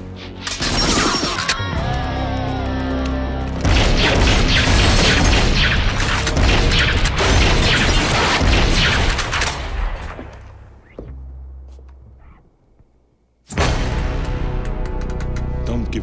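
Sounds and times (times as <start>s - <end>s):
film score: 0.0s - 16.0s.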